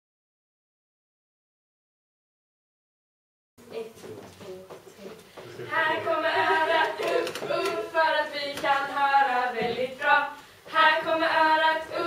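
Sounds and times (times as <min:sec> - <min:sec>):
girls singing unaccompanied: 0:05.5 - 0:12.0.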